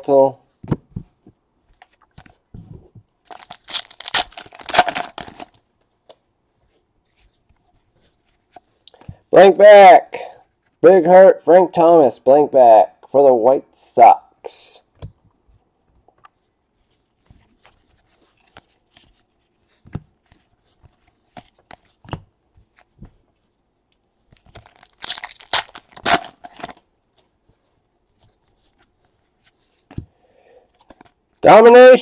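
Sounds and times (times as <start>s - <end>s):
cardboard cards shuffled: 0.7s - 6.2s, 15.8s - 23.2s
foil wrapper ripping: 3.3s - 5.6s, 24.4s - 26.8s.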